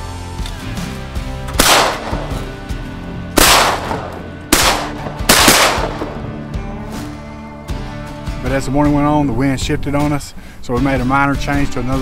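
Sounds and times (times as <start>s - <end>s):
background music: 0.0s - 12.0s
shotgun blasts echoing: 1.5s - 2.5s, 3.4s - 6.4s.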